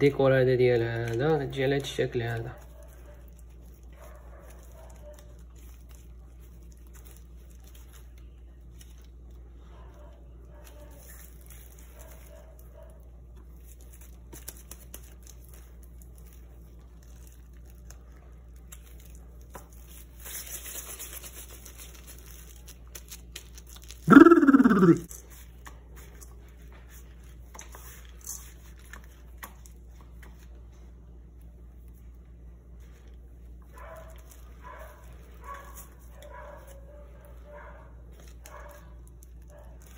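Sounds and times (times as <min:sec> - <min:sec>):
dog barking: 0:04.0 - 0:05.4, 0:33.7 - 0:38.9.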